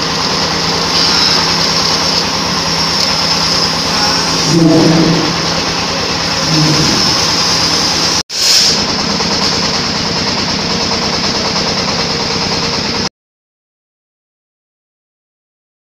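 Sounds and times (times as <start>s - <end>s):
grinding machine whirring: 0.0s - 13.1s.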